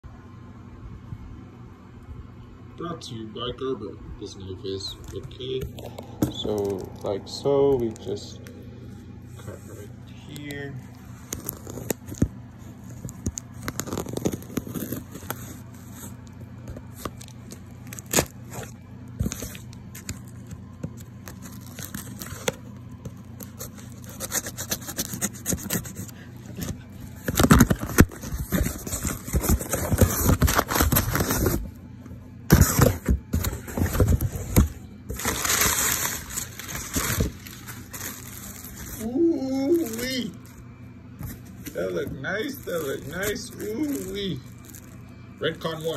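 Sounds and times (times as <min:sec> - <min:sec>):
cardboard rustling and crinkling: 0:04.9 - 0:08.2, 0:09.4 - 0:31.8, 0:32.5 - 0:40.6, 0:41.2 - 0:45.9
knife scraping packing tape: 0:23.4 - 0:31.5.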